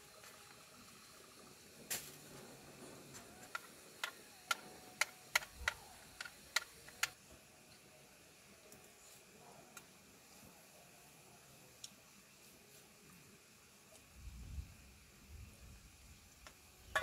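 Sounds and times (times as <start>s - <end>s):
faint hiss: 0.0s - 17.0s
sharp clicks: 3.4s - 7.2s.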